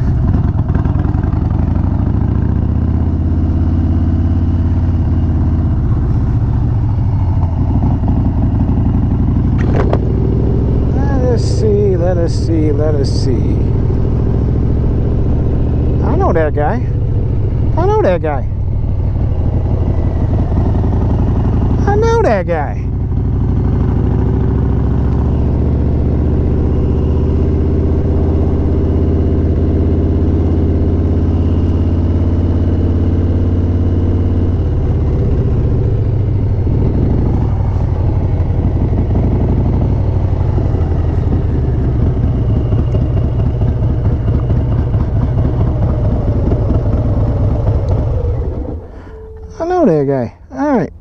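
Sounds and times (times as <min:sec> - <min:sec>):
motorcycle engine running: 0:00.0 - 0:51.0.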